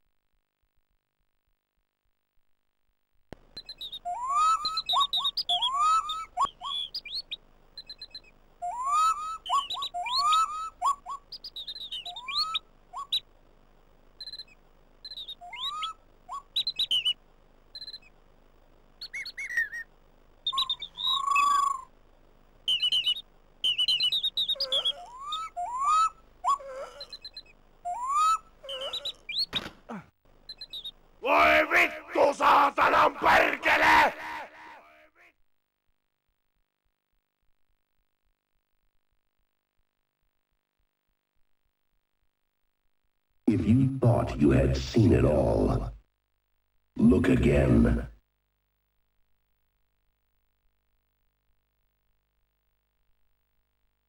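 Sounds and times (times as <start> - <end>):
quick rising bird chirps: 3.6 - 13.3, 14.2 - 18.2, 19.0 - 21.9, 22.7 - 29.7, 30.4 - 31.0.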